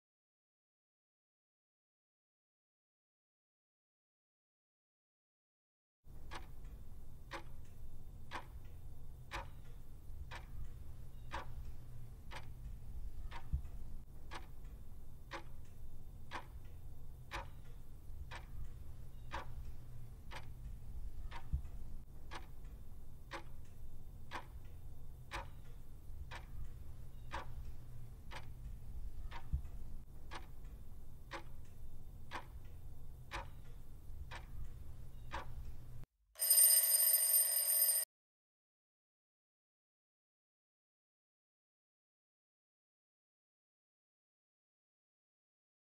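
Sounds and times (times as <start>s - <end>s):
clock ticking: 6.1s - 38.0s
low steady hum: 6.2s - 36.0s.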